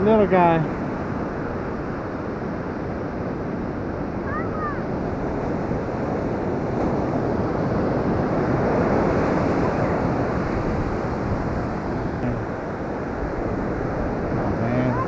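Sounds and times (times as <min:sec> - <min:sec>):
ocean surf washing up beach: 0:00.0 - 0:15.0
wind on microphone: 0:00.0 - 0:15.0.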